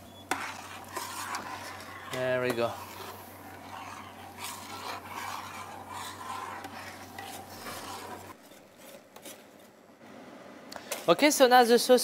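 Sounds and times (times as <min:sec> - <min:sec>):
spoon scraping a metal pot: 0:00.3 - 0:08.4.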